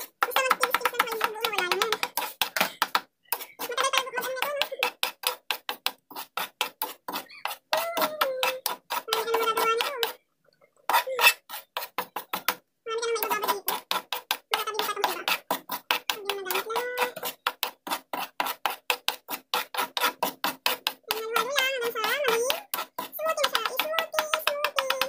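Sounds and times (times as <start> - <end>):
metal spoon scraping a frying pan: 0.0 - 10.2, 10.9 - 12.5, 13.2 - 25.0.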